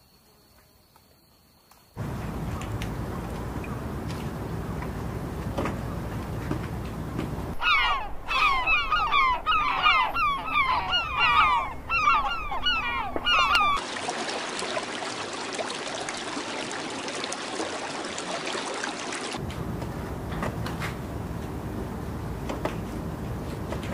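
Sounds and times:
birds honking calls: 0:02.0 - 0:13.8.

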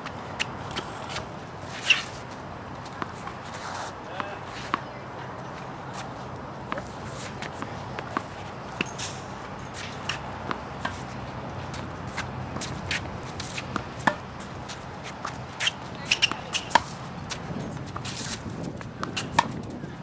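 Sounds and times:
sneakers shuffling on court: 0:00.0 - 0:20.0
tennis ball bouncing: 0:00.0 - 0:20.0
tennis ball struck by racket: 0:02.8 - 0:04.9, 0:06.0 - 0:19.8.

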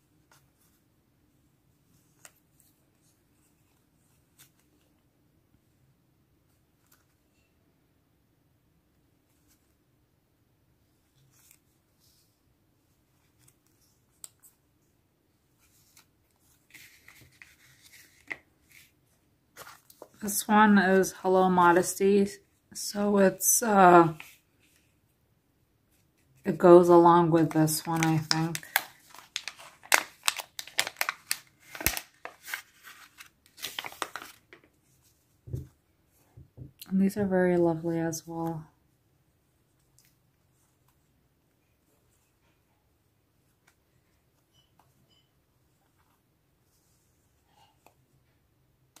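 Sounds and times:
paper stickers rustling: 0:27.4 - 0:34.7.

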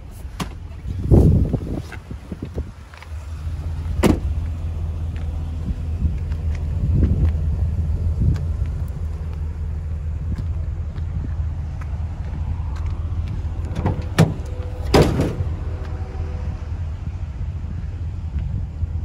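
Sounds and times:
steady low rumble: 0:00.0 - 0:19.0
tailgate metallic clank: 0:04.0 - 0:04.3, 0:13.7 - 0:15.5.

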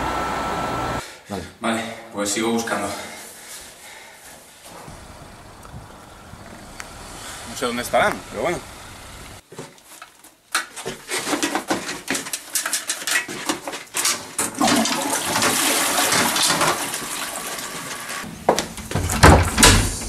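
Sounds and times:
toilet flushing: 0:14.4 - 0:18.3
splashing in toilet bowl water: 0:14.5 - 0:17.7.

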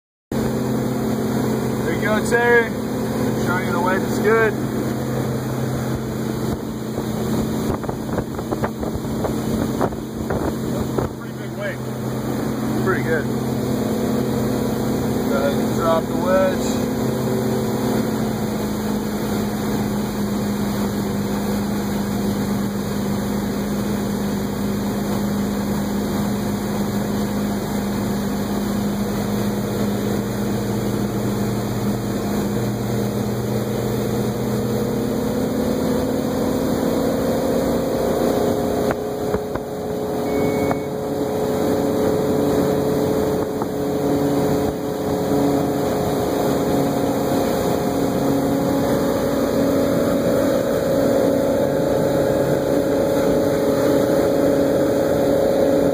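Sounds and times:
boat inboard engine running: 0:00.3 - 0:55.9
water noise: 0:00.3 - 0:55.9
wind noise: 0:06.4 - 0:11.2.

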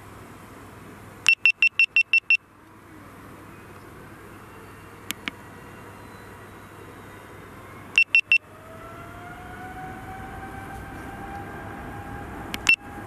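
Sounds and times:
short high-pitched beeps: 0:01.3 - 0:02.4, 0:07.9 - 0:08.4
jet engines whining: 0:02.9 - 0:13.0.

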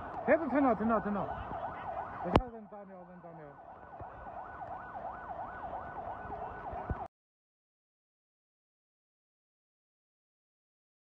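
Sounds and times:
emergency siren yelping: 0:00.0 - 0:07.1.

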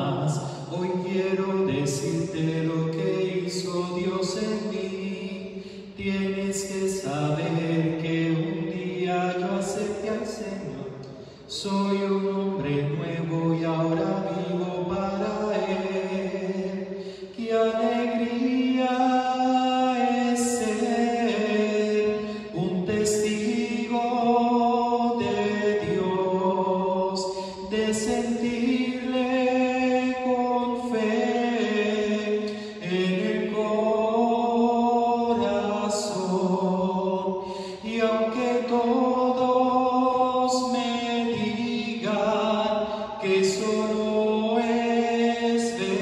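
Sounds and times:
person singing a hymn: 0:00.0 - 0:46.0
singer breathing: 0:00.4 - 0:00.7, 0:05.4 - 0:06.0, 0:11.0 - 0:11.5, 0:16.8 - 0:17.4, 0:22.2 - 0:22.6, 0:27.2 - 0:27.7, 0:32.5 - 0:32.8, 0:37.4 - 0:37.9, 0:42.8 - 0:43.2.

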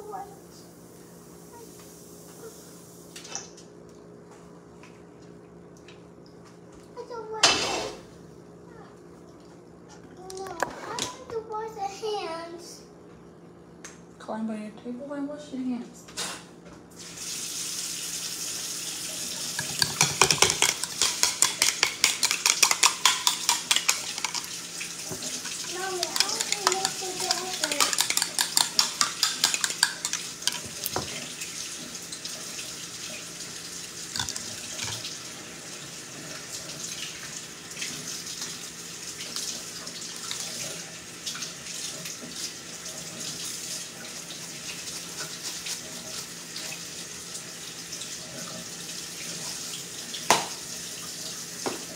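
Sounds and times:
fork clinking in ceramic bowl: 0:19.6 - 0:24.5, 0:25.5 - 0:30.9, 0:34.2 - 0:35.0.

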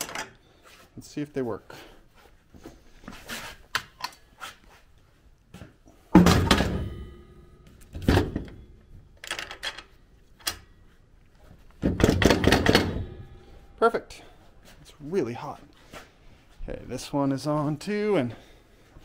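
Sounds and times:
heavy metal clunk: 0:06.1 - 0:08.6, 0:11.8 - 0:13.6
metal parts clattering: 0:09.2 - 0:10.6.

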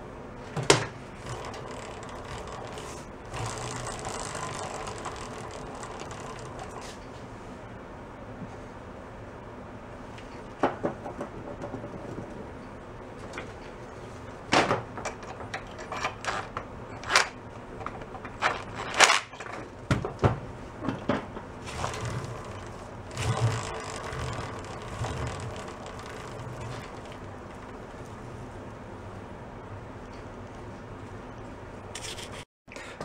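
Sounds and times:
drive chain whirring rattle: 0:01.1 - 0:07.2, 0:15.2 - 0:19.7, 0:21.6 - 0:28.2.

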